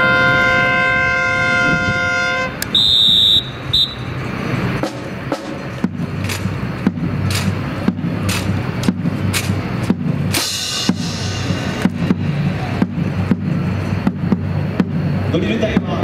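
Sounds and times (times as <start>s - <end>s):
sharp marching strikes: 2.4s - 16.0s.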